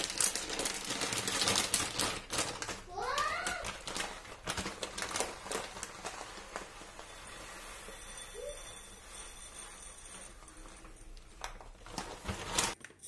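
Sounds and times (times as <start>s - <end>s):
rice grains pouring into bowl: 6.7s - 10.8s.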